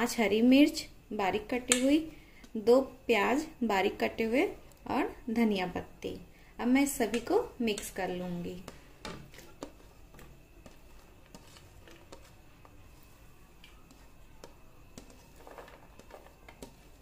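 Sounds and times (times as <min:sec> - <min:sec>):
vegetables scraped across ceramic plate: 0:08.7 - 0:13.3, 0:15.0 - 0:17.0
pieces dropping into bowl: 0:15.0 - 0:16.8.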